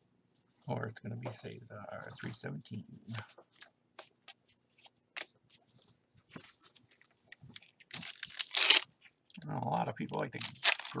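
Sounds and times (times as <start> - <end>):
card pack wrapper crinkling: 7.5 - 8.9, 10.0 - 11.0.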